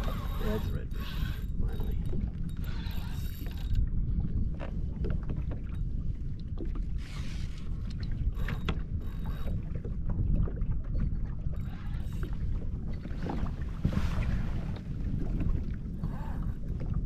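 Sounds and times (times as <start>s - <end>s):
wind on microphone: 0.0s - 17.0s
fishing reel clicks: 0.1s - 3.8s.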